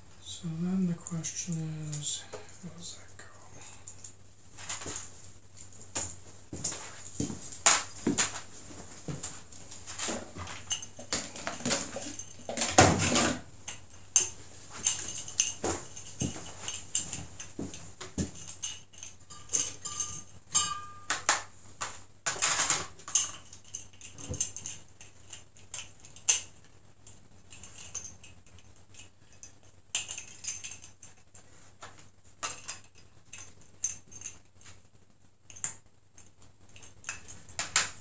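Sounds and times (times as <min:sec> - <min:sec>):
metal bottle caps clinking: 0:18.4 - 0:21.4.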